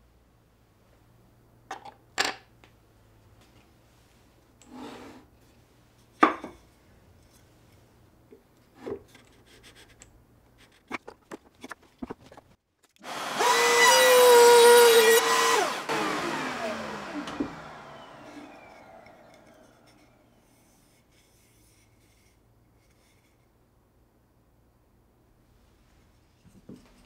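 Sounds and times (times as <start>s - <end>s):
router whining: 13.0s - 20.4s.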